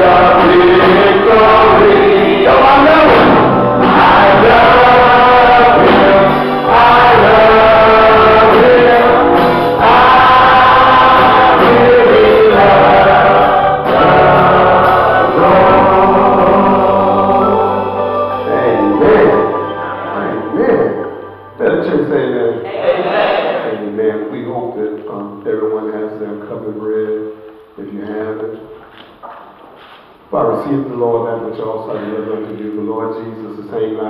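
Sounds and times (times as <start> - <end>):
choir singing a hymn: 0.0 - 23.8.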